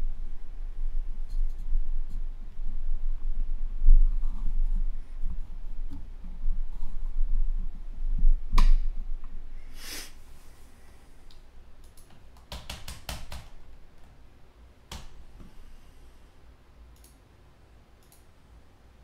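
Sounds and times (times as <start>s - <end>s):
sharp clicks: 11.3s - 13.6s, 17.0s - 17.2s, 18.0s - 18.3s.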